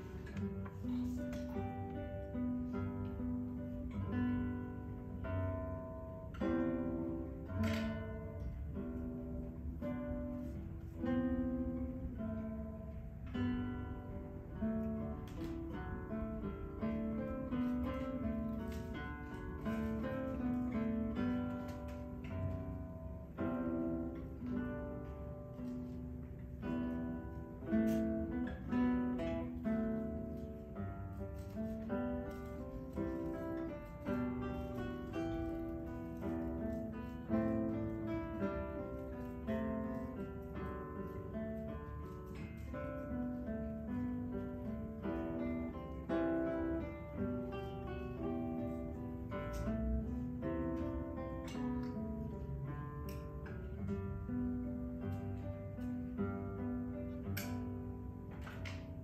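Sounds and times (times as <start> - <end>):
acoustic guitar plucked and strummed: 0.0 - 59.0.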